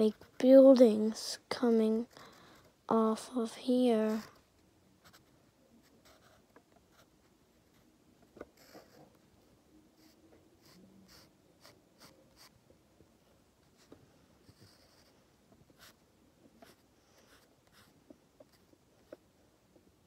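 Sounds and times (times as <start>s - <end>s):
pencil scratching on paper: 3.9s - 4.4s, 5.0s - 7.1s, 8.6s - 9.2s, 10.0s - 12.6s, 13.7s - 15.2s, 15.8s - 16.0s, 16.6s - 19.2s.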